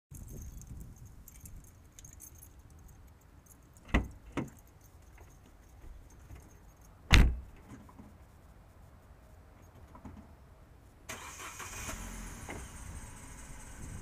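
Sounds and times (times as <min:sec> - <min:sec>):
car door slamming shut: 0:07.1 - 0:07.5
car door opening: 0:07.1 - 0:07.6.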